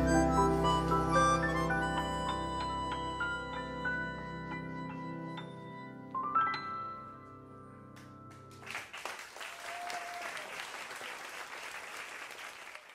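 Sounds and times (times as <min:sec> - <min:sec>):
audience applause: 0:08.5 - 0:12.9.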